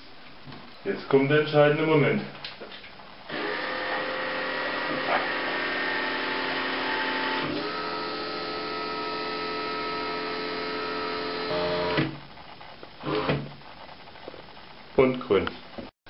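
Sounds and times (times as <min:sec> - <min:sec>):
coffee maker motor whining: 0:03.3 - 0:12.0.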